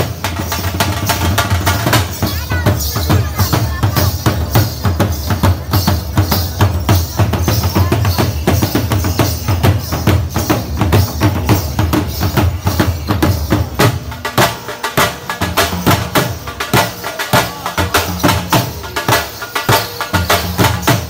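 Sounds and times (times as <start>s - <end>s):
dhol drums booming: 0.0s - 21.0s.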